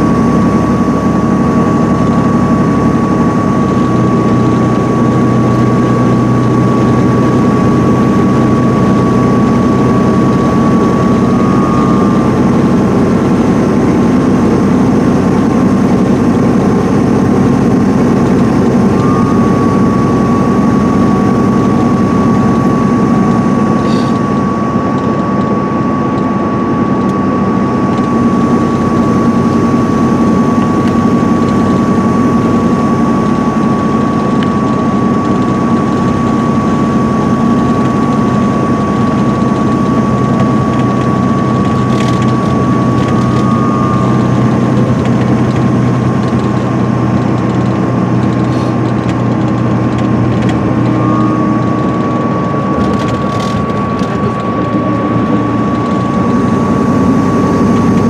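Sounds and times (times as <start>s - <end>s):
diesel engine droning: 0.0s - 58.0s
thin high whine: 0.0s - 58.0s
tyre noise on wet road: 44.0s - 51.0s.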